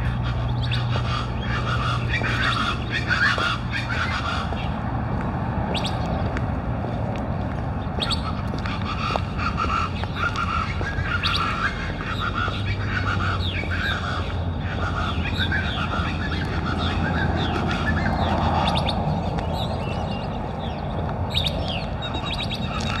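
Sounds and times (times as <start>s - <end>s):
birds squawking and chirping: 0.0s - 23.0s.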